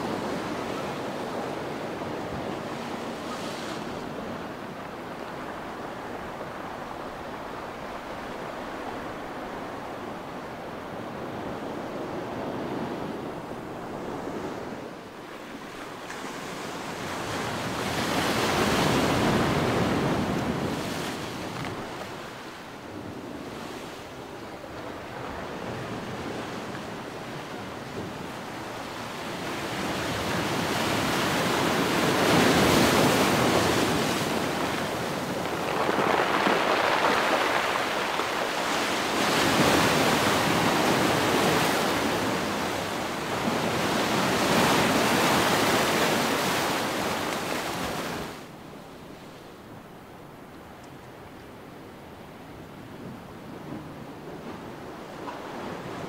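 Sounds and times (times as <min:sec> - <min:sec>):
surf breaking on pebbly shore: 0:29.8 - 0:48.4.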